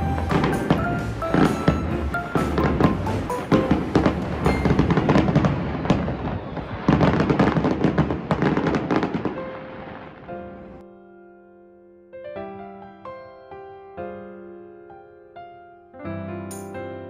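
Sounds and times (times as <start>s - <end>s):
soft piano music: 0.0s - 5.8s, 8.7s - 17.0s
fireworks bursting and crackling: 0.0s - 10.8s.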